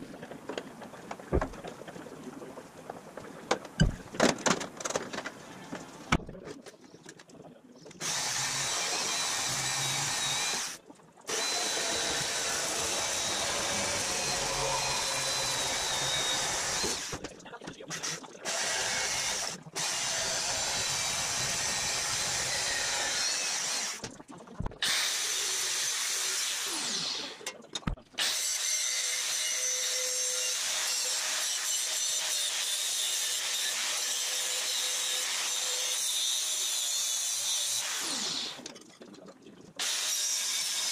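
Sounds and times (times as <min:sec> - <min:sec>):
electric sheet-metal cutter cutting steel: 0:08.0 - 0:17.2, 0:18.5 - 0:24.0, 0:28.2 - 0:38.6, 0:39.8 - 0:40.9
angle grinder grinding steel: 0:11.3 - 0:17.2, 0:28.2 - 0:38.6.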